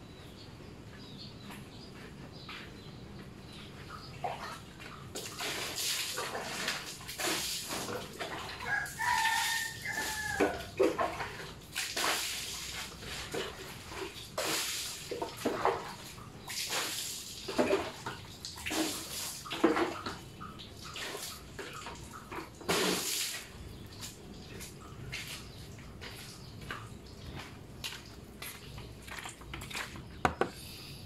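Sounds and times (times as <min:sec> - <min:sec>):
water splashing from pours: 0:04.2 - 0:25.9.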